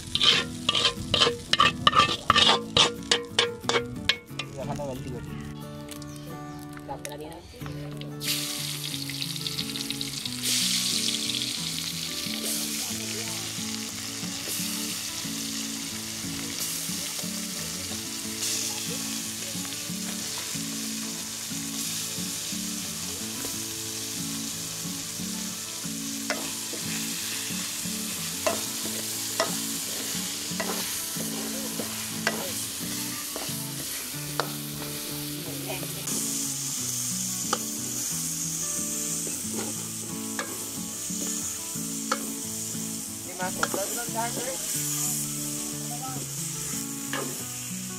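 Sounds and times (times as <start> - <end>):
metal ladle stirring: 0.0 - 4.6
chicken sizzling in hot oil: 0.0 - 4.9, 8.0 - 47.9.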